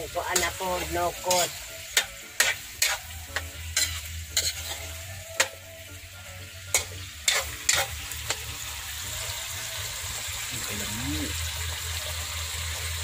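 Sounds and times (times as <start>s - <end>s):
frying sizzle: 0.0s - 13.0s
metal spoon scraping a wok: 0.3s - 5.7s, 6.7s - 9.0s.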